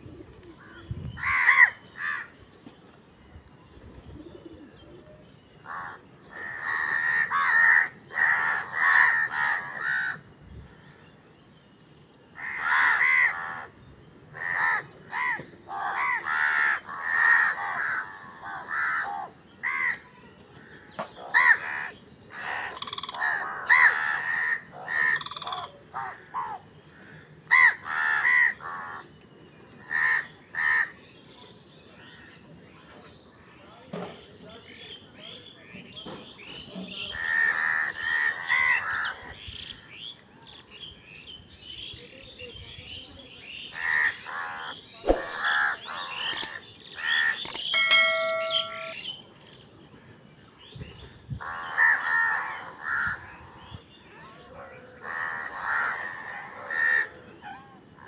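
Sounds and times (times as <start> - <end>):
crows cawing: 5.6 - 11.0, 12.4 - 13.7, 14.4 - 20.0, 20.7 - 29.1, 29.8 - 31.0, 37.1 - 39.3, 51.4 - 53.6, 55.0 - 57.3.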